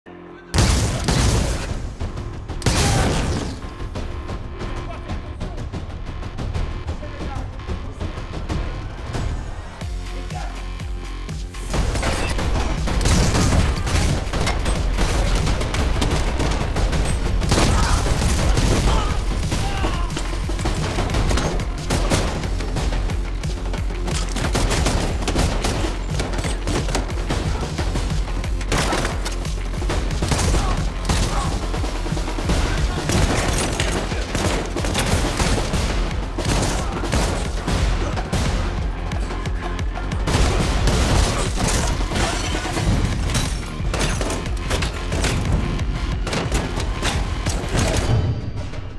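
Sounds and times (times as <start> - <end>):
driving electronic music: 0.1 - 48.0
shotgun firing: 0.6 - 1.8, 11.7 - 38.9, 40.2 - 48.9
gunfire: 0.6 - 3.8, 11.7 - 48.9.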